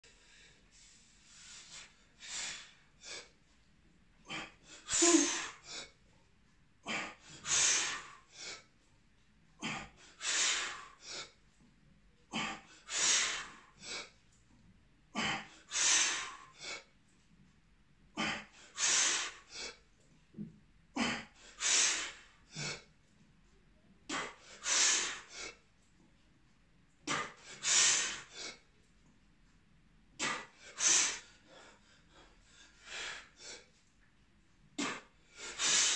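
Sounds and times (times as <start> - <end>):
man breathing forcefully: 6.9 - 8.7, 9.6 - 11.4, 12.4 - 14.2, 15.2 - 16.9, 18.2 - 19.8, 24.1 - 25.6, 27.0 - 28.6, 30.2 - 33.7, 34.8 - 35.9.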